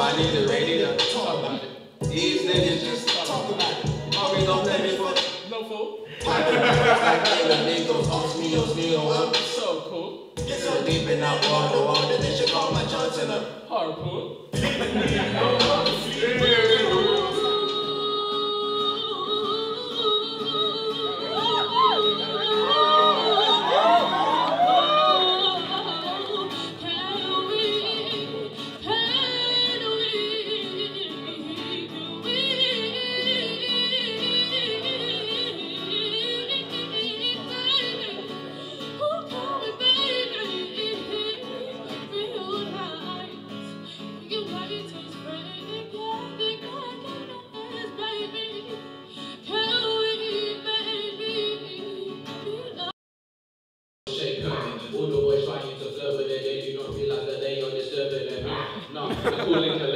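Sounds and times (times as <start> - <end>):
acoustic guitar: 0.0 - 52.9, 54.1 - 59.9
woman singing: 2.0 - 5.4, 6.2 - 9.2, 14.6 - 52.9.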